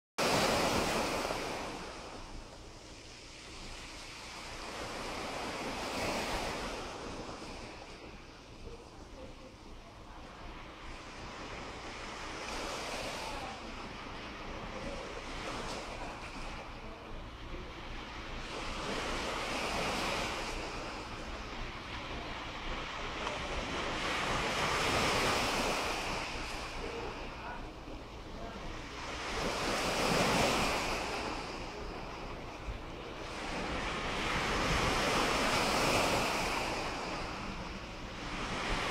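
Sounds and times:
waves washing onto pebble beach: 0:10.2 - 0:38.9.

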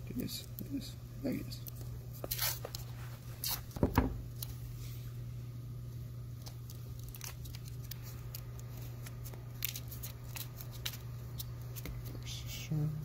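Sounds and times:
steady low hum: 0:00.0 - 0:13.0
masking tape crackling and ripping: 0:01.6 - 0:04.6, 0:06.4 - 0:12.3.

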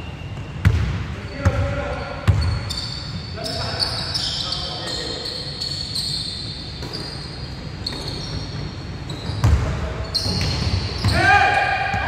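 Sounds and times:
sneaker squeaks on wooden floor: 0:00.0 - 0:11.3
basketball bouncing: 0:00.6 - 0:01.6, 0:02.2 - 0:02.6, 0:09.2 - 0:11.2.

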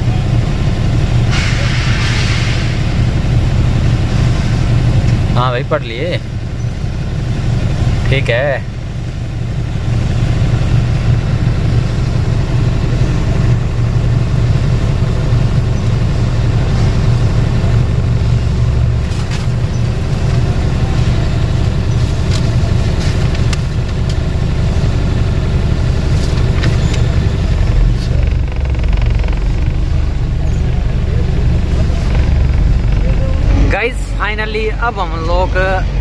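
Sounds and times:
truck diesel engine idling: 0:00.0 - 0:36.0
sharp clicks and knocks: 0:26.2 - 0:33.8.

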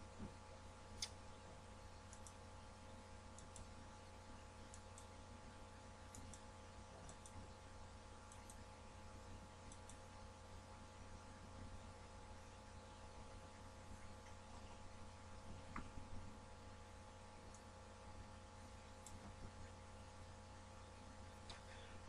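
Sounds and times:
faint hum: 0:00.0 - 0:22.0
faint small clicks: 0:01.0 - 0:01.2, 0:02.1 - 0:02.4, 0:03.4 - 0:03.7, 0:04.7 - 0:05.2, 0:06.1 - 0:07.4, 0:08.3 - 0:08.6, 0:09.6 - 0:10.0, 0:17.5 - 0:17.7, 0:19.0 - 0:19.5.

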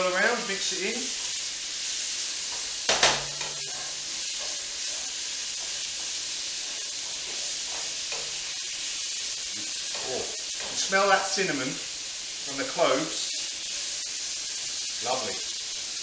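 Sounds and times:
chicken sizzling in a frying pan: 0:00.0 - 0:16.0
knock: 0:02.9 - 0:03.4.

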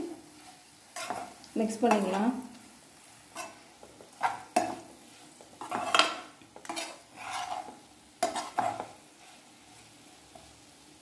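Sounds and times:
metal spoon scraping frying pan: 0:00.9 - 0:02.3, 0:03.3 - 0:09.4.

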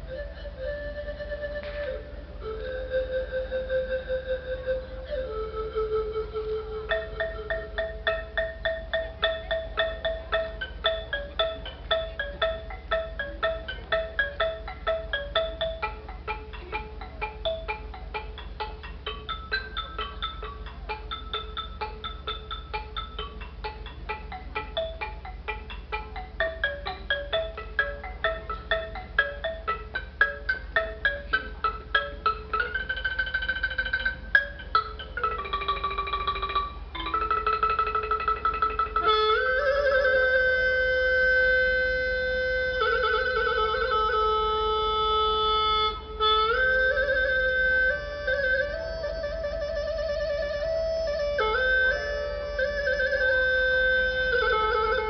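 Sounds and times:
wind instrument held notes: 0:00.0 - 0:22.7, 0:36.8 - 0:55.0
wooden xylophone melody: 0:00.0 - 0:55.0.

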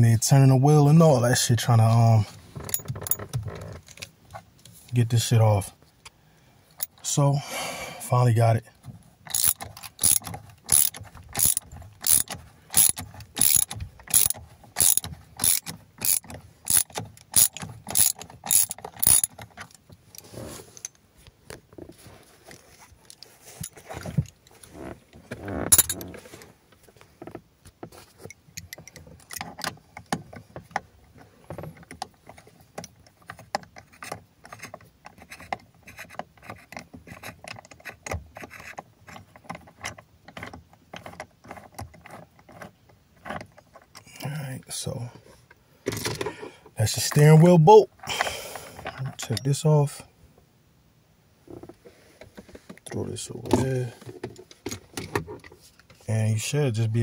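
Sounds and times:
socket ratchet clicking: 0:09.3 - 0:19.4.

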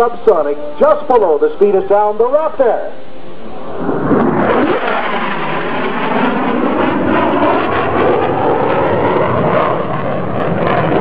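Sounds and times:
jet roar of fighter passing: 0:02.8 - 0:11.0.

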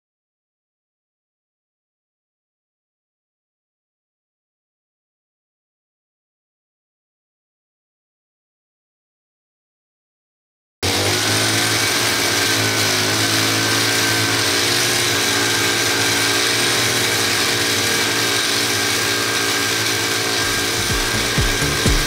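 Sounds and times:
blade scraping on pavement: 0:10.8 - 0:22.0
brush cutter running: 0:10.8 - 0:22.0.

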